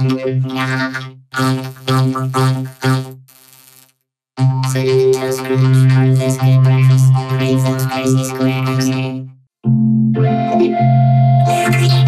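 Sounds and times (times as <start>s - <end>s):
distorted synthesizer-like buzzing drone: 0.0s - 9.2s, 11.4s - 12.0s.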